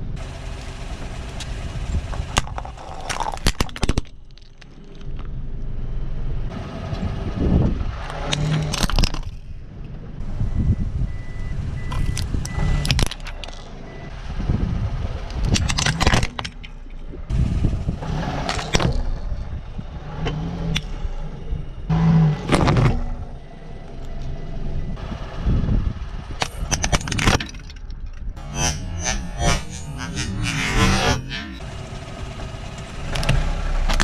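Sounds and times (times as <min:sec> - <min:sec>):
car engine rumbling: 0:00.0 - 0:34.0.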